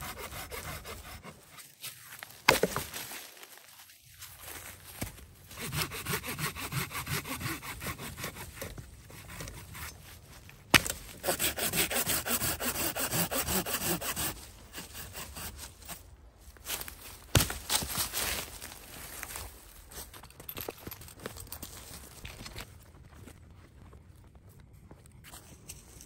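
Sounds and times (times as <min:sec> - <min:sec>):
hand saw cutting log: 0:00.0 - 0:01.7, 0:05.5 - 0:10.2, 0:10.8 - 0:16.0.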